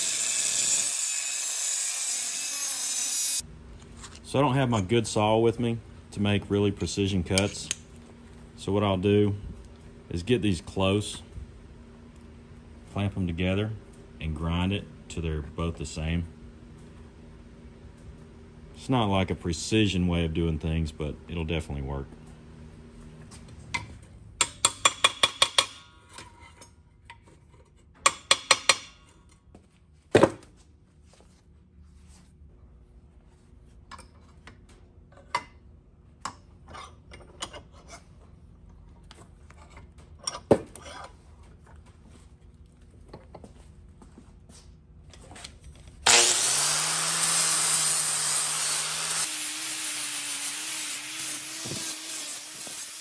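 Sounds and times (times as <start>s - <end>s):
angle grinder grinding metal: 0.0s - 3.4s, 46.1s - 53.0s.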